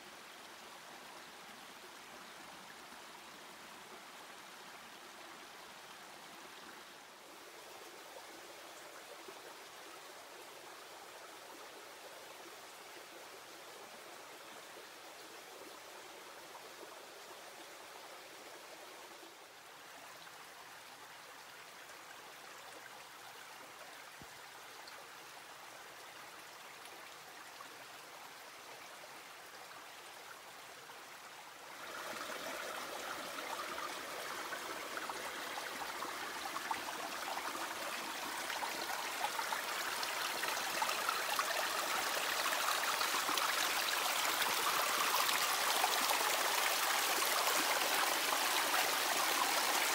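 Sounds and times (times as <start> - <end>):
river water rushing: 31.6 - 49.9.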